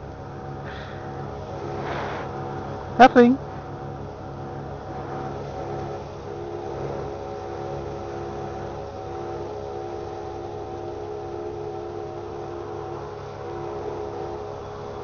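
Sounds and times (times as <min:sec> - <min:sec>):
hiss of flowing fuel: 0:00.6 - 0:02.6.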